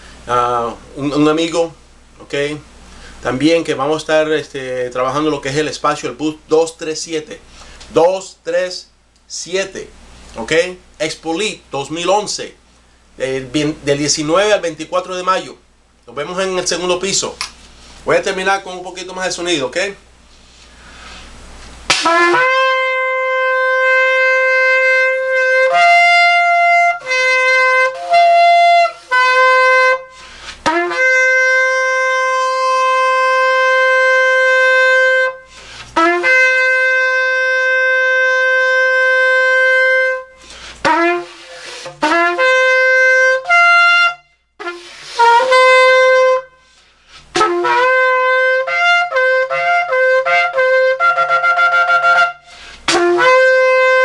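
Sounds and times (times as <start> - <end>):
shofar blasts: 21.9 - 54.0.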